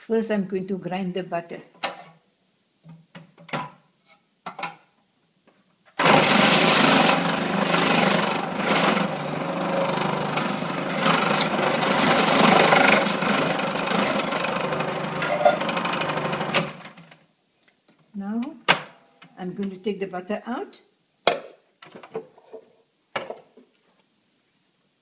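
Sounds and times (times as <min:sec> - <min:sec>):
food processor motor running: 0:06.0 - 0:16.9.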